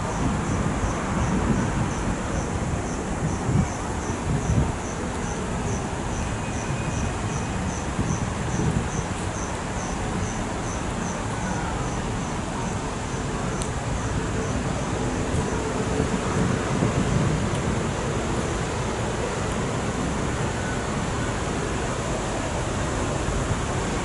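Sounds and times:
insect chirping: 0.1s - 13.3s.

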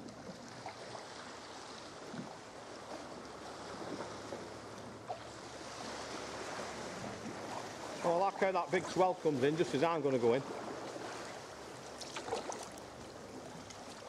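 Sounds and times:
water lapping against rock: 0.0s - 14.0s
small splashes: 10.4s - 14.0s.

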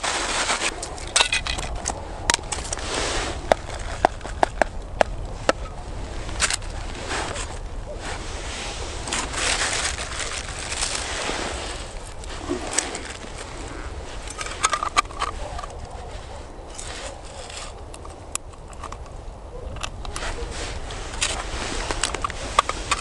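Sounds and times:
plastic bag rustling: 0.0s - 17.8s
fishing gear clicks: 6.3s - 7.6s, 21.1s - 23.0s.

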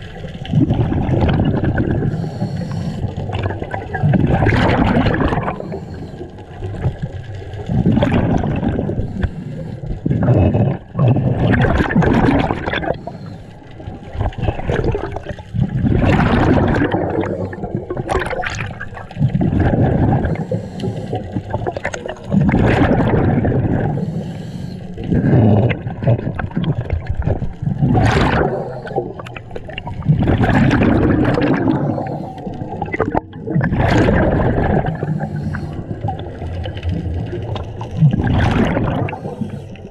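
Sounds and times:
exhaled bubbles gurgling underwater: 0.0s - 39.9s
breaths through a regulator: 1.6s - 3.6s, 4.8s - 6.8s, 7.8s - 12.0s, 12.6s - 13.8s, 16.5s - 18.4s, 19.1s - 26.9s, 28.1s - 36.4s, 38.5s - 39.9s.

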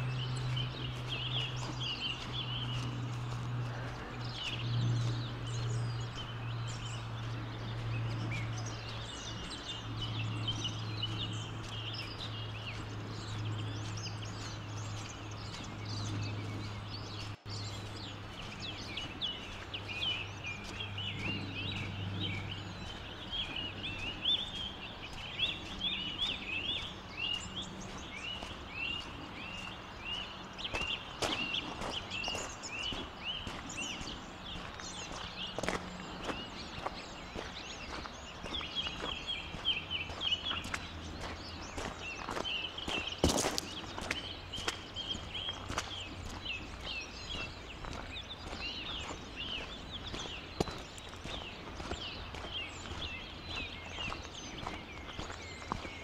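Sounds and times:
steady low hum: 0.0s - 42.8s
footsteps on trail: 0.0s - 56.0s
small birds chirping: 0.0s - 56.0s.

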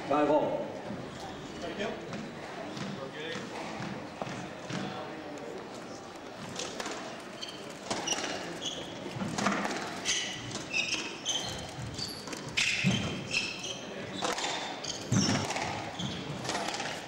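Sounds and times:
shoes squeaking on wooden floor: 0.8s - 5.0s, 6.4s - 17.0s
squash ball hits: 14.1s - 17.0s.

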